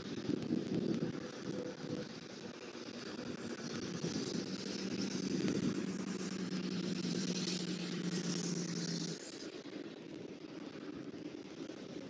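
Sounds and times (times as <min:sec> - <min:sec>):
passing vehicle engine drone: 0:03.8 - 0:12.0.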